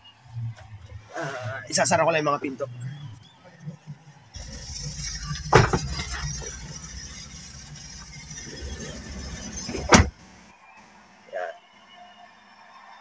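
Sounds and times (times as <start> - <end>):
van doors slamming shut: 9.6 - 10.2.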